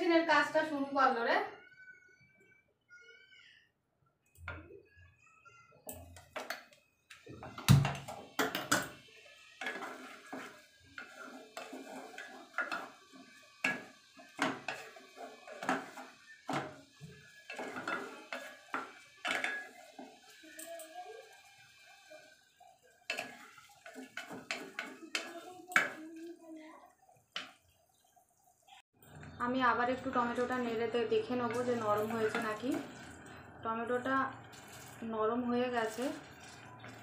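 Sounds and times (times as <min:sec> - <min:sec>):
wooden spatula scraping pot: 0:06.2 - 0:26.4, 0:31.2 - 0:37.0.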